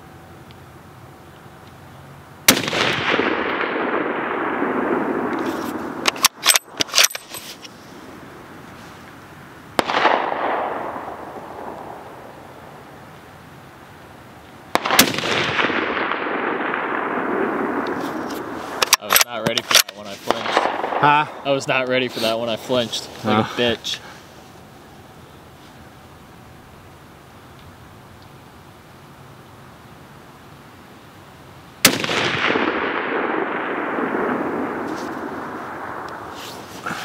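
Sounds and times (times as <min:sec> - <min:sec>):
rifle shots with echo: 0:02.5 - 0:07.2, 0:09.8 - 0:12.8, 0:14.7 - 0:21.6, 0:31.8 - 0:37.0
rifle bolt metallic clicks: 0:06.0 - 0:07.5, 0:18.8 - 0:20.0.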